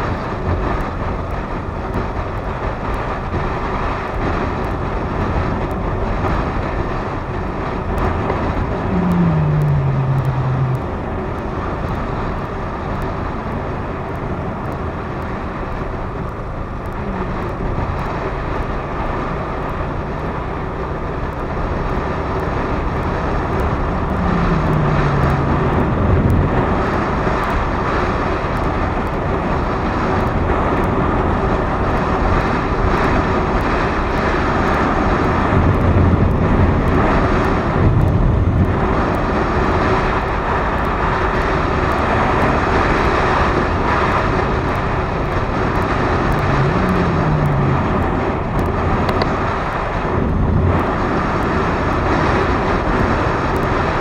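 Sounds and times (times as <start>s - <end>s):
wind rush: 0.0s - 20.5s, 21.3s - 54.0s
motorcycle engine running: 0.0s - 54.0s
tone falling in pitch: 8.9s - 11.0s.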